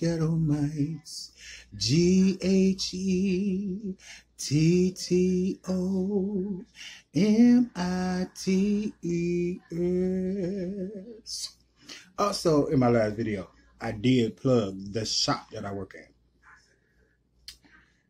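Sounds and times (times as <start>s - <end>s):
man singing unaccompanied: 0.0s - 11.5s
man breathing: 1.3s - 1.8s, 4.0s - 4.4s, 6.7s - 7.2s, 11.8s - 12.2s.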